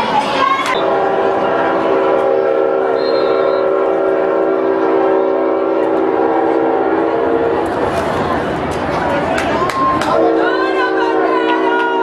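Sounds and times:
horn blast sounding a chord: 0.8 - 7.7.

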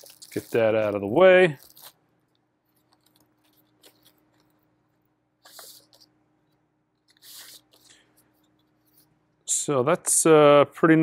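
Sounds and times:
paper sliding on card: 5.4 - 6.0, 7.1 - 8.0.

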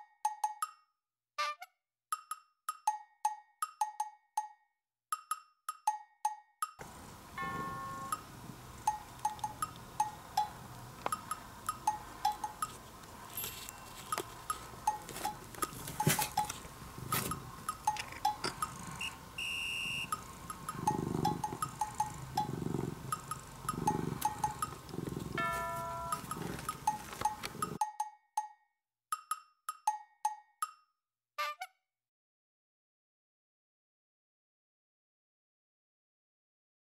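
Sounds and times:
bouncy wood block music: 0.0 - 31.7.

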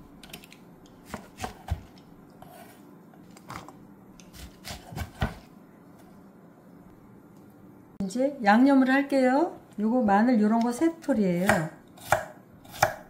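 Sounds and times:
knife chopping on wooden board: 1.0 - 2.7, 4.3 - 5.5, 11.4 - 13.0.

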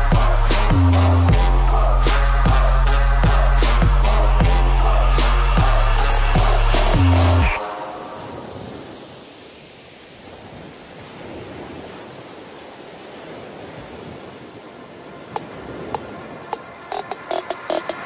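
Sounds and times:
music: 0.0 - 8.6, 15.9 - 18.0
soft steady rushing noise: 14.4 - 18.0.

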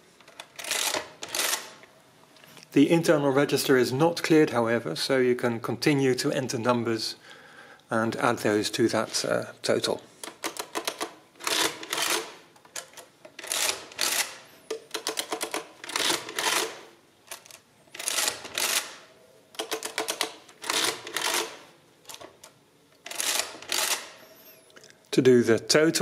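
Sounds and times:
adding machine keys clicking: 19.6 - 24.1.

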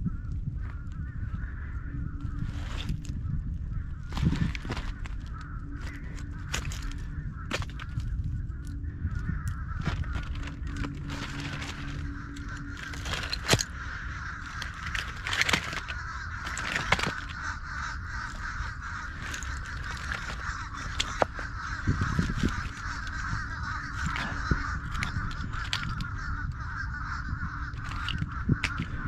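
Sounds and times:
wind rumble on microphone: 0.0 - 29.0
boots stepping on shells: 4.1 - 8.2, 9.8 - 13.8, 14.4 - 17.5, 18.2 - 23.1, 23.9 - 26.0
oyster shells clinking and crunching: 4.1 - 8.3, 9.8 - 26.2, 27.7 - 29.0.

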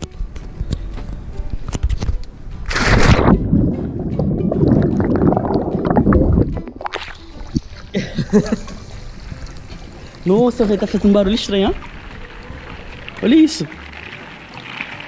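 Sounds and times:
underwater bubbling and gurgling: 2.9 - 8.0.

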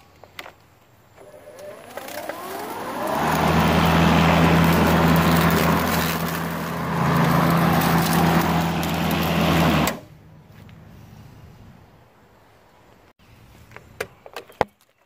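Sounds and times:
electric lawn mower running: 1.2 - 10.0
mower blade cutting wet grass: 1.2 - 10.0.

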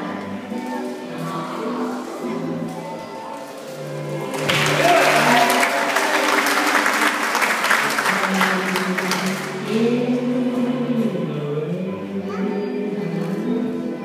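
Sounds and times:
recorded music: 0.0 - 14.0
audience applauding: 3.3 - 9.7.

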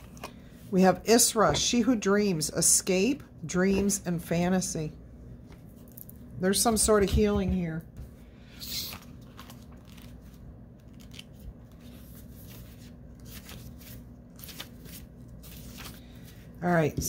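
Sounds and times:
steady low hum: 0.0 - 17.0
cards and paper rustling: 8.6 - 16.9.

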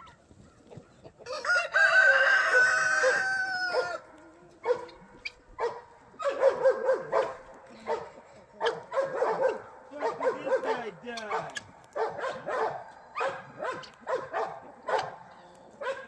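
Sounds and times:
chickens clucking: 0.0 - 16.0
rooster crowing: 1.2 - 4.1.

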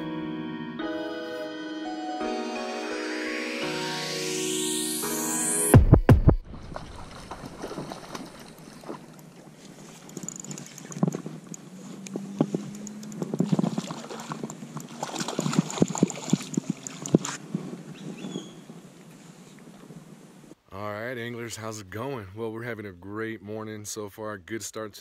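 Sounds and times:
fish splashing at the surface: 6.5 - 11.0, 12.6 - 17.4
fishing reel clicking and rattling: 10.0 - 11.6.

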